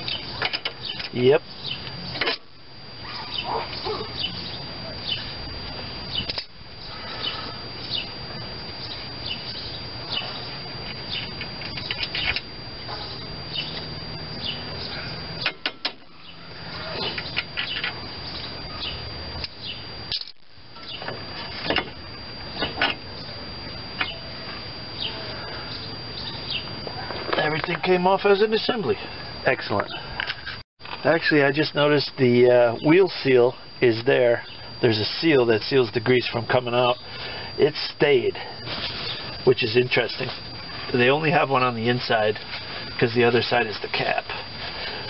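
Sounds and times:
small birds chirping: 0.0 - 2.2, 2.8 - 20.2, 20.8 - 21.6, 22.2 - 26.8, 34.3 - 34.8, 38.9 - 39.5.

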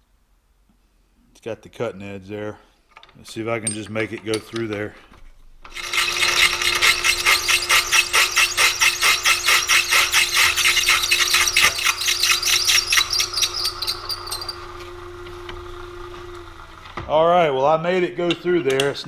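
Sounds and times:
milling machine running: 5.6 - 17.0
drill bit chattering: 5.7 - 14.8.

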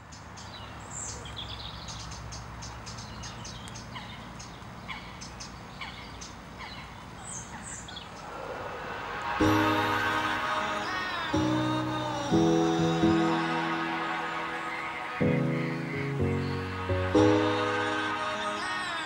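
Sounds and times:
birds calling and chirping: 0.0 - 9.1
music: 9.2 - 19.0.

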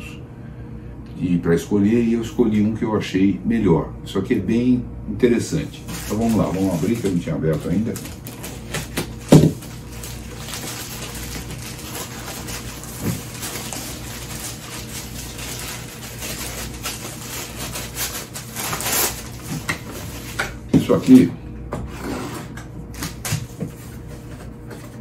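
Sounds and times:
plastic mailer bag crinkling: 5.6 - 21.3.

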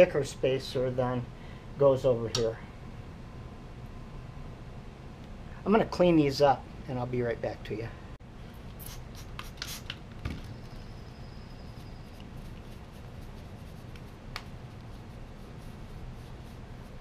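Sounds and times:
cloth rubbing metal parts: 10.6 - 17.0.

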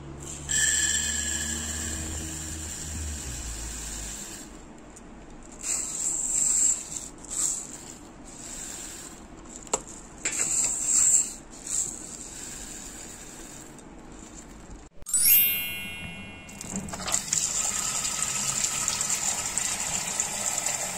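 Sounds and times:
rice pouring into a clay pot: 0.5 - 4.5.

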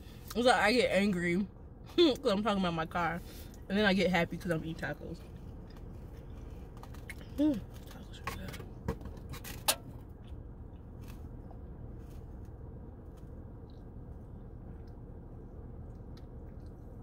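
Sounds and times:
low rumble: 2.9 - 17.0.

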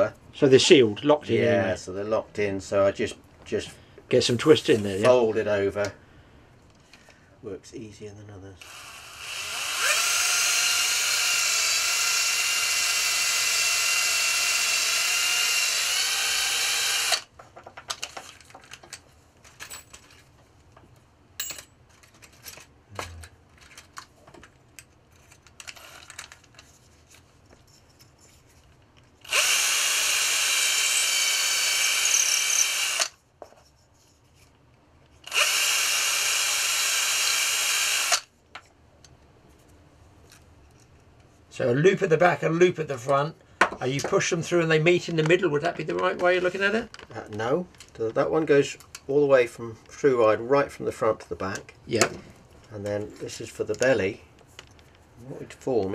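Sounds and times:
cordless drill running: 8.6 - 17.3, 25.7 - 26.1, 29.2 - 33.2, 35.3 - 38.3.

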